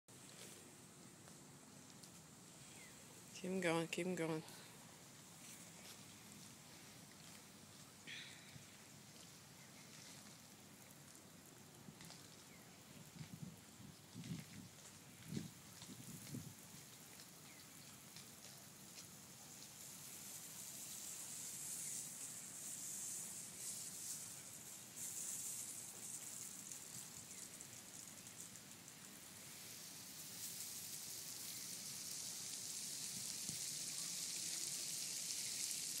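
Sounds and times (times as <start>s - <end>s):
droplets pattering on grass: 4.4s - 36.0s
hose nozzle spraying water: 19.5s - 36.0s.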